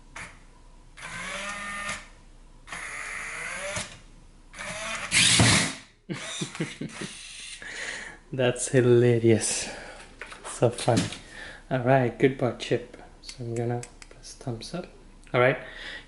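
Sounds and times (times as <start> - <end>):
robot dog motors whirring: 1.0 - 2.0, 2.7 - 4.0, 4.6 - 5.8.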